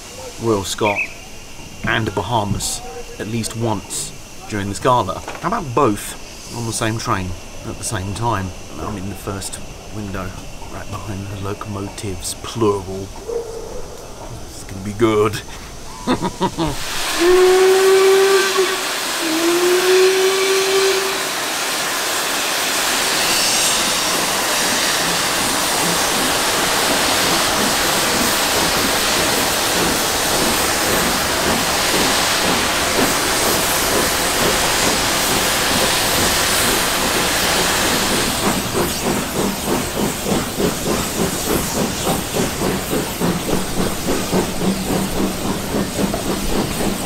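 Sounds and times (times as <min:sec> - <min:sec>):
steam hissing and exhaust: 0:00.0 - 0:13.4, 0:14.0 - 0:47.0
steam whistle blasts: 0:16.9 - 0:21.9
regular exhaust beats: 0:24.0 - 0:47.0.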